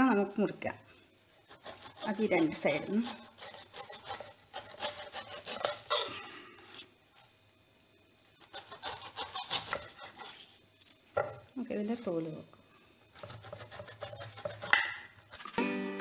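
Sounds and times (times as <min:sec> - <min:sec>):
knife slicing pineapple skin: 0:01.3 - 0:06.9, 0:08.3 - 0:10.6, 0:13.1 - 0:15.6.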